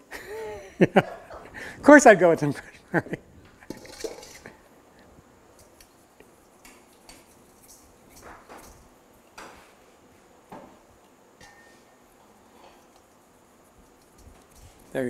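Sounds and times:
kitchen items clinking and scraping: 3.6 - 4.7, 11.4 - 13.0.

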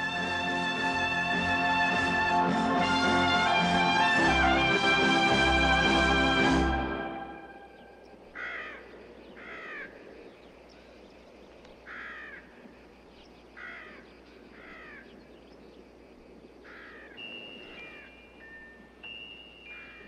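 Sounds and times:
outdoor ambience hiss: 0.0 - 20.0
harsh bird calls: 7.5 - 20.0.

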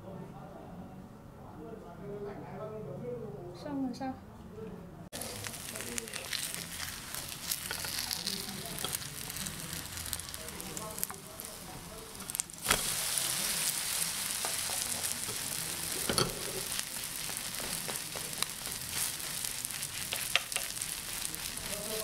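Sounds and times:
pancake sizzling in oil: 5.2 - 22.0
spatulas tapping and scraping pan: 6.0 - 10.4, 11.0 - 22.0.

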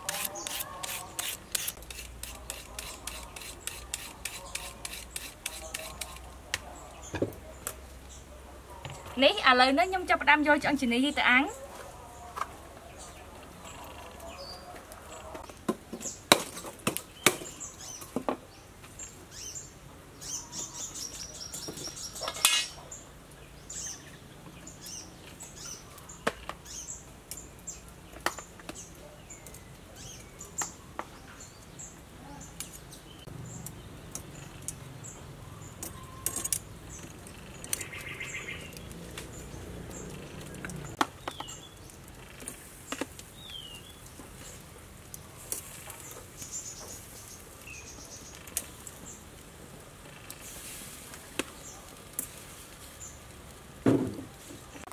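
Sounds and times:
birds chirping faintly: 16.9 - 53.6.

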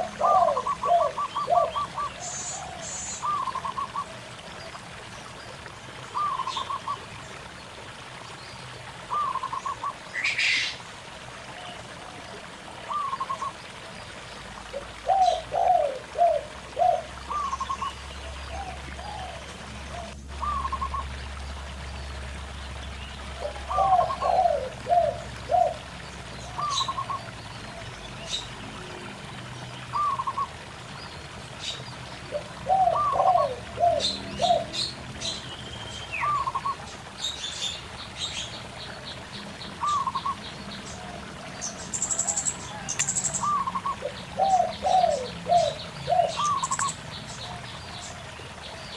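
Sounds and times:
doves cooing: 0.0 - 4.2, 14.7 - 21.0, 23.4 - 25.9, 26.5 - 27.9, 32.2 - 34.9, 38.6 - 48.9
stream trickling: 0.0 - 48.9.

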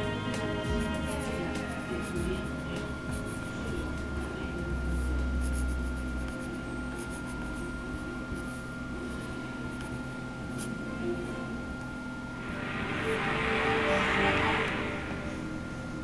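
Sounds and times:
faint steady hum: 0.0 - 16.0
pen scratching on wood: 5.4 - 7.6.

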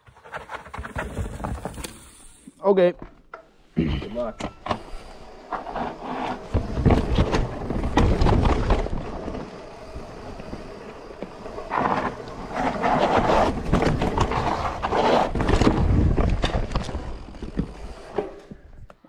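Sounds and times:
bike rattling over bumps: 4.6 - 18.8
bike tyres rumbling over rock: 5.5 - 18.7.

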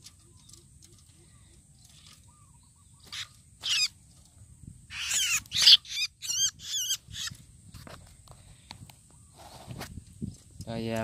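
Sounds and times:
bird harsh rasping calls: 1.3 - 4.0, 4.9 - 7.4.

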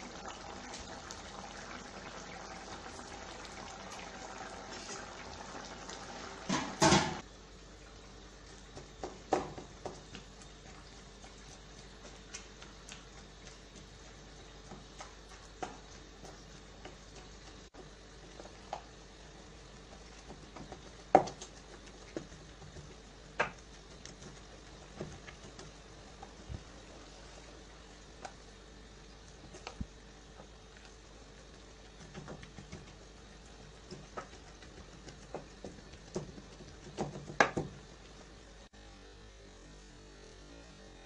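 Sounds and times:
faint steady hum: 0.0 - 41.0
spatula knocking and scraping pot: 31.8 - 38.0.

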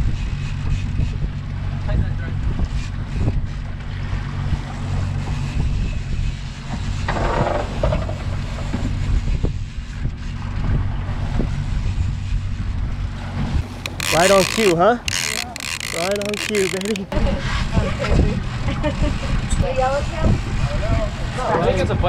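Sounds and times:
outboard motor running: 13.6 - 17.2.

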